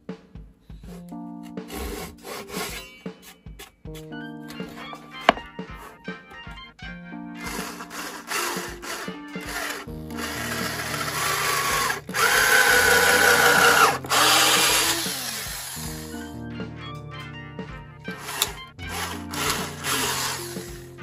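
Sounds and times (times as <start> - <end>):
background music: 0.0 - 21.0
cordless drill boring into wood: 7.4 - 16.2, 18.2 - 20.8.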